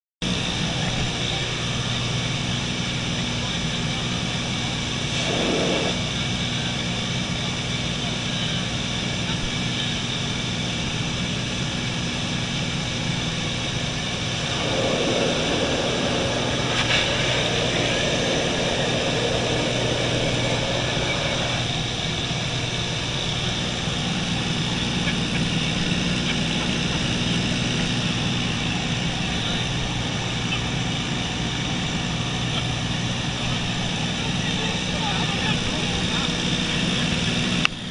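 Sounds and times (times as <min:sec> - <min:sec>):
propeller plane engine droning: 0:00.2 - 0:37.9
air rushing through window: 0:05.0 - 0:06.2, 0:12.2 - 0:37.9.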